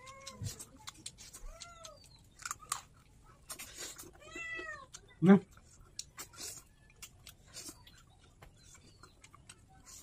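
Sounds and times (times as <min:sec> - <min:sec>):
person chewing food: 0:00.0 - 0:10.0
cat meowing: 0:04.2 - 0:04.9.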